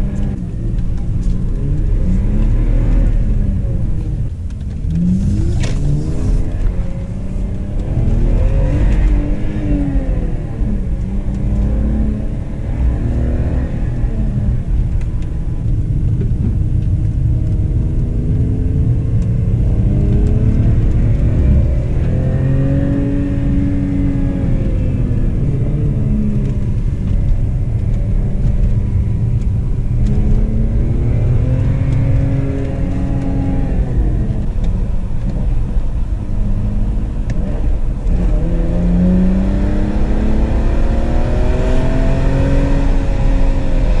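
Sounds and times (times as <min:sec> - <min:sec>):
car engine accelerating: 0:00.0 - 0:44.0.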